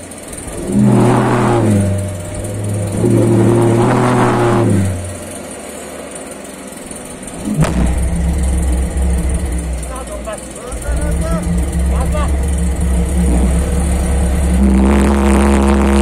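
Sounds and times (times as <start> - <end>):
pulse jet engine droning: 0.0 - 16.0
sharp pop: 7.5 - 8.2.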